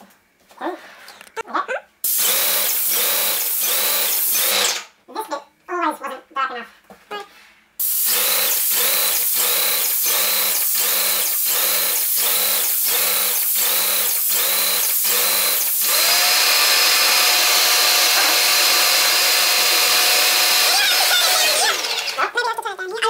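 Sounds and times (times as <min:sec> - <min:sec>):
paint sprayer hissing: 0:02.0 - 0:04.8, 0:07.8 - 0:22.3.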